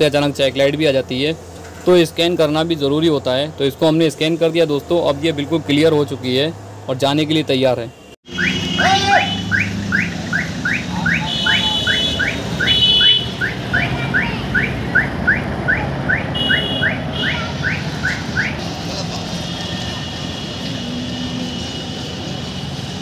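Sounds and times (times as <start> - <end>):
diesel engine running: 8.3 - 23.0.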